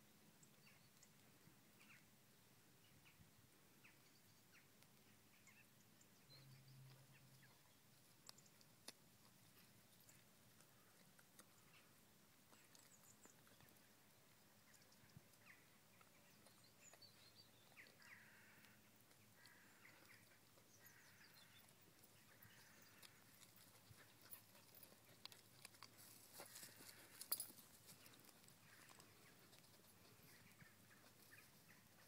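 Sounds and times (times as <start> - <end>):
dog chewing corn cob: 16.0 - 30.5.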